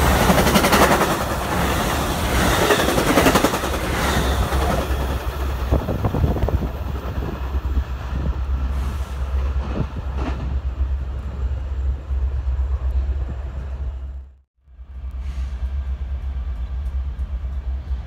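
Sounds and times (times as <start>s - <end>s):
train wheels clicking over rail joints: 0.0s - 7.5s
train low rumble: 0.0s - 18.0s.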